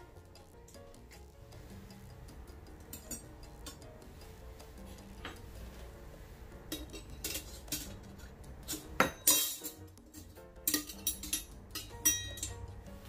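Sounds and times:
metal utensils clinking: 2.9s - 3.8s, 6.7s - 12.7s.

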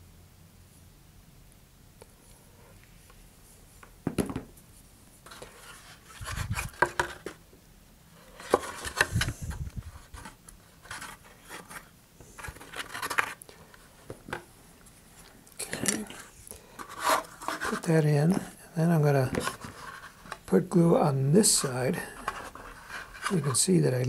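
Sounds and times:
object knocked down on workbench: 4.0s - 4.5s
wooden dowel scraping paper tube: 16.8s - 18.5s, 21.4s - 23.7s.

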